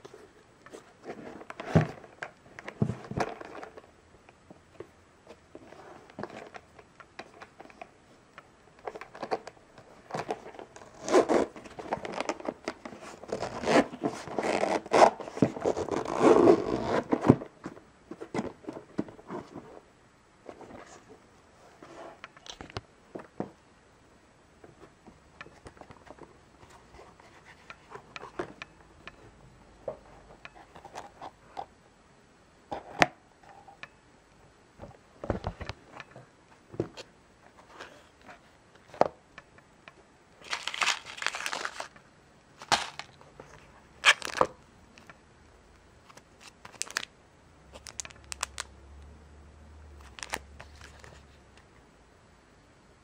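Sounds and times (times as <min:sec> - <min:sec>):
plastic crinkling: 0:40.4 - 0:42.0, 0:42.6 - 0:44.6, 0:46.1 - 0:47.1, 0:47.7 - 0:48.7, 0:50.0 - 0:51.3.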